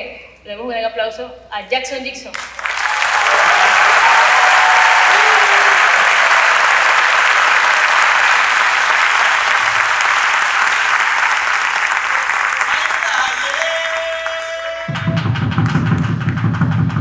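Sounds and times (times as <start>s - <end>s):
audience applauding: 2.4s - 16.5s.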